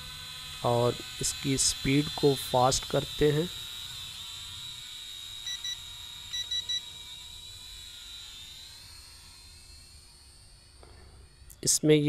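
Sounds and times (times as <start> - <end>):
drone motors whining: 0.0 - 12.0
transmitter beeps: 5.5 - 6.9.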